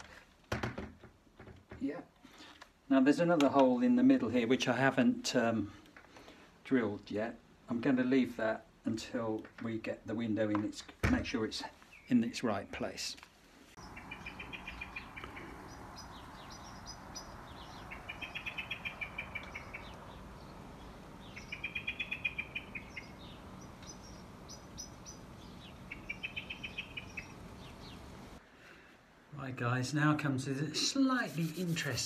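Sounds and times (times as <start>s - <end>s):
songbird trilling: 13.8s - 28.1s
steady background hum: 13.8s - 29.2s.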